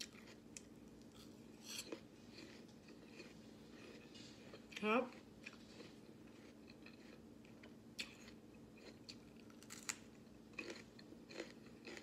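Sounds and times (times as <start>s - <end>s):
faint steady hum: 0.0s - 12.0s
crunching raw bell pepper: 8.0s - 12.0s.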